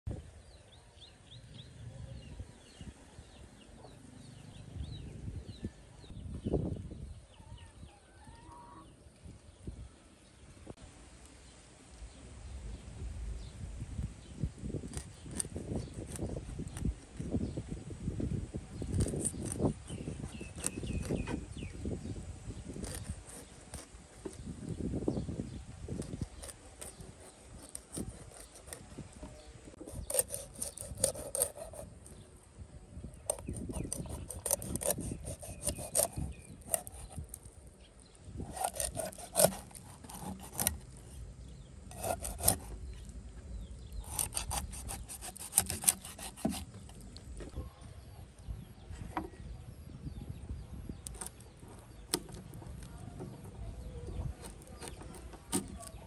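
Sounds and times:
rapid scraping strokes: 29.7 - 32.2, 33.3 - 37.4, 38.5 - 41.2, 41.9 - 42.8, 44.0 - 47.0.

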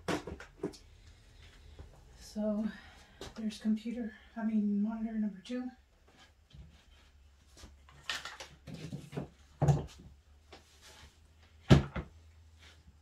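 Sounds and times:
monitor stand knocks: 11.7 - 12.1.

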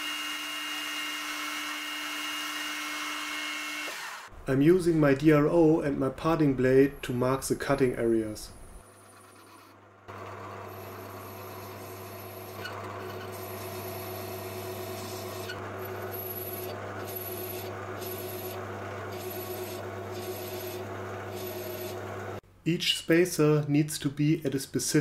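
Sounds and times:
lathe motor hum: 8.8 - 22.4.

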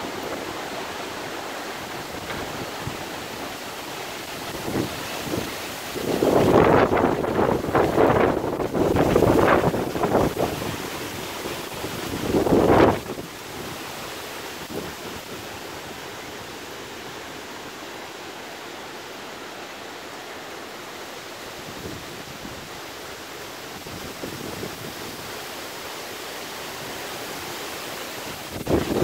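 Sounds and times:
rain hissing: 0.0 - 29.0.

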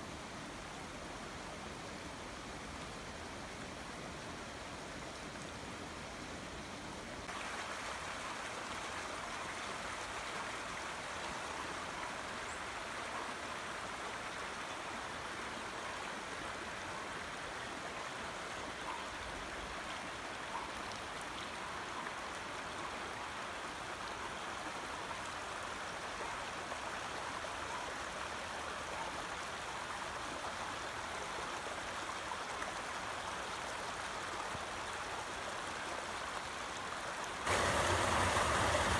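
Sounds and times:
water rushing over asphalt: 37.2 - 38.9.

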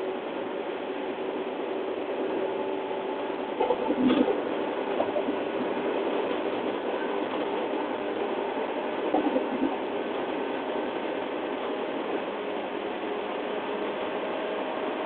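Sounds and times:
train wheels on rail: 1.2 - 15.0.

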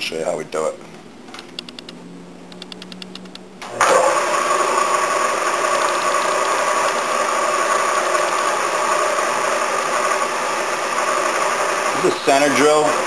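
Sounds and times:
drill press motor hum and whine: 3.6 - 13.0.

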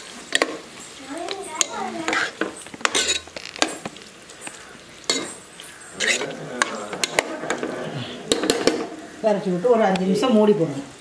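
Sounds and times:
light sizzle: 0.0 - 11.0
spatula scraping a pot: 1.6 - 9.0.

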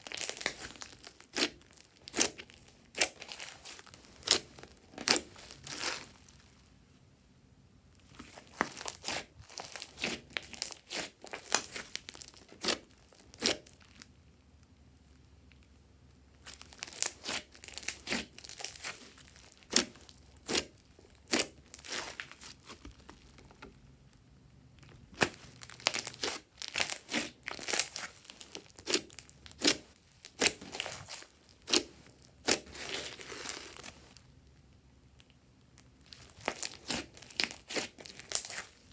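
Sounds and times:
slime popping and crackling: 0.0 - 6.4, 8.1 - 14.0, 16.4 - 23.8, 24.8 - 34.2, 35.8 - 38.9.

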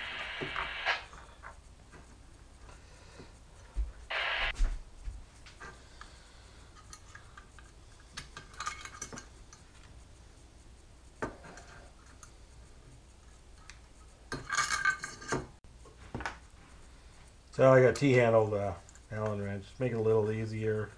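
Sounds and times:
metal parts and tools clattering: 6.7 - 9.7, 14.3 - 15.6
small metal hardware clinking: 6.7 - 9.8, 13.5 - 15.6.

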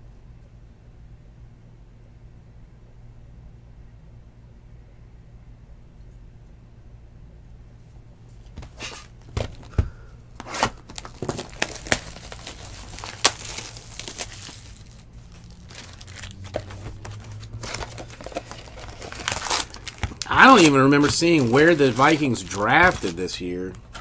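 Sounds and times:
foil packs rustling: 8.5 - 24.0.

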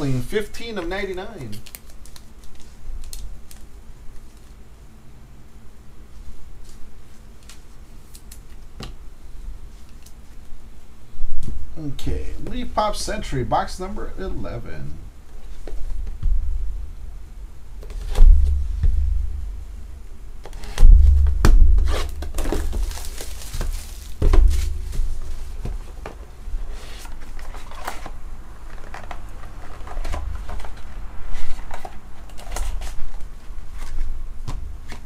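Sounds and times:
plastic crinkling: 0.8 - 4.6, 21.8 - 34.1
dull thumps of box handling: 20.7 - 26.2.

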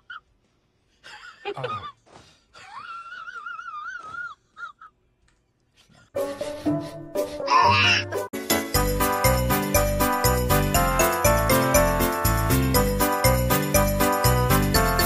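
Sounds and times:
jingly music: 7.5 - 15.0.

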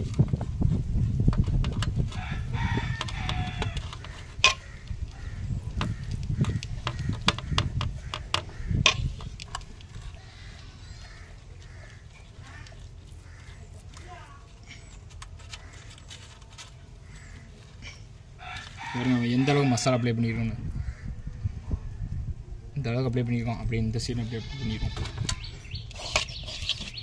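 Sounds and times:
handling noise: 0.0 - 19.7
rooster crowing: 2.2 - 3.8, 18.4 - 20.1.

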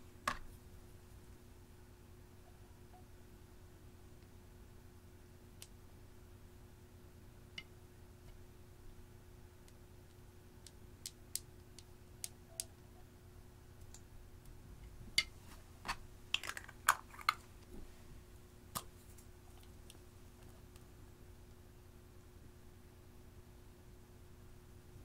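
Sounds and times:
faint steady hum: 0.0 - 25.0
makeup cases clicking: 16.4 - 17.4.

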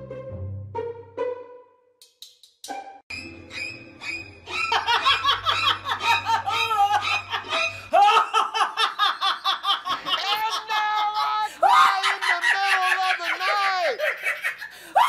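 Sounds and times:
woman laughing: 4.5 - 15.0.

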